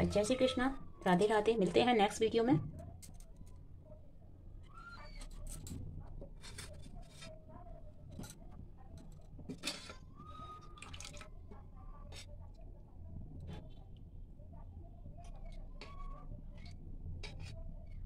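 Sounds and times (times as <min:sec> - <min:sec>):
metal spoon clinking and scraping: 0:09.0 - 0:10.1.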